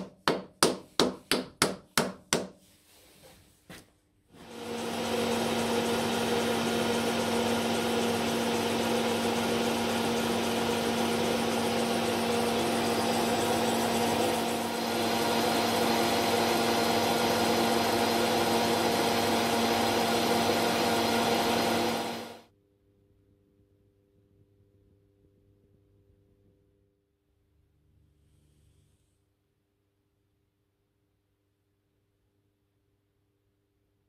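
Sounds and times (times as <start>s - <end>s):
metal lathe humming: 4.4s - 22.4s.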